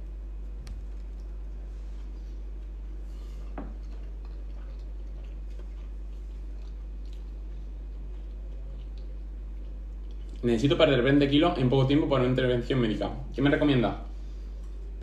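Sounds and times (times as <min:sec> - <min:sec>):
steady low hum: 0:00.0 - 0:15.0
soft chewing: 0:00.5 - 0:10.5.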